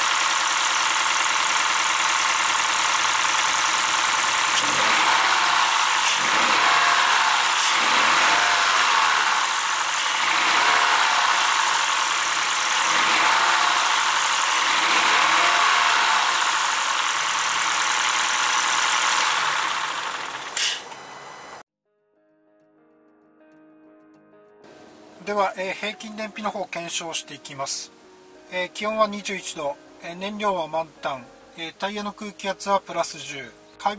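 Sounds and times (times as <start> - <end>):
car engine running: 0.0 - 21.6.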